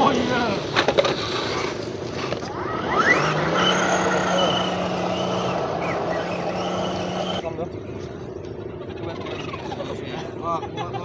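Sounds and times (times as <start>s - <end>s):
rc car electric motor whining: 1.3s - 7.4s.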